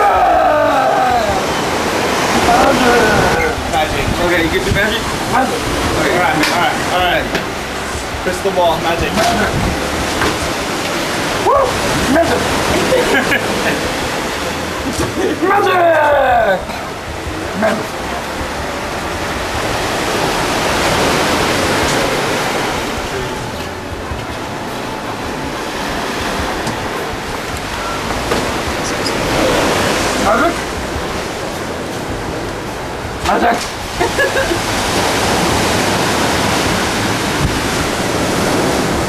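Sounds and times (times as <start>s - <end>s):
ocean surf on rocks: 0.0s - 39.0s
steady rushing noise: 0.0s - 39.0s
person's voice: 2.4s - 4.8s.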